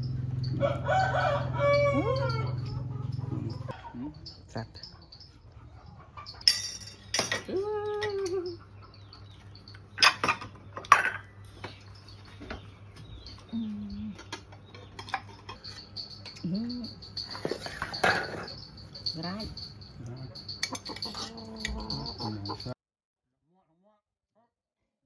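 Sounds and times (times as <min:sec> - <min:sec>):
kitchenware clinking and knocking: 0:06.3 - 0:08.4, 0:09.6 - 0:13.4, 0:14.2 - 0:22.8.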